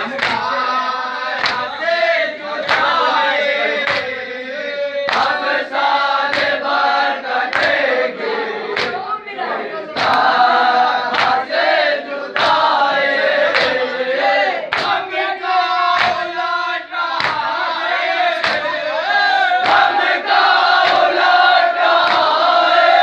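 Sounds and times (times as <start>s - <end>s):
hands slapping chests: 0.0s - 0.5s, 1.4s - 1.8s, 2.6s - 3.0s, 3.8s - 4.2s, 5.1s - 6.8s, 7.4s - 8.0s, 8.7s - 9.1s, 10.0s - 10.4s, 11.0s - 11.5s, 12.3s - 13.9s, 14.7s - 15.3s, 15.9s - 16.4s, 17.1s - 17.6s, 18.3s - 18.8s, 19.6s - 21.2s, 21.9s - 22.4s
men chanting a lament: 0.0s - 23.0s.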